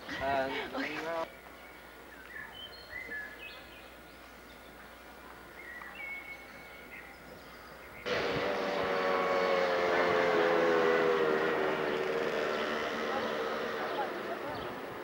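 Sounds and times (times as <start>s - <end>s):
birds chirping faintly: 8.9s - 15.0s.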